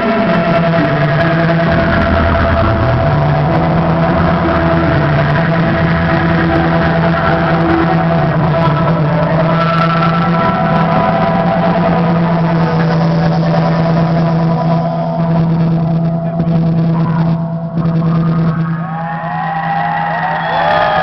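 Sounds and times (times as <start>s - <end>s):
low drone: 0.0s - 21.0s
rock band holding a chord: 0.0s - 21.0s
crowd whooping and whistling: 18.2s - 21.0s.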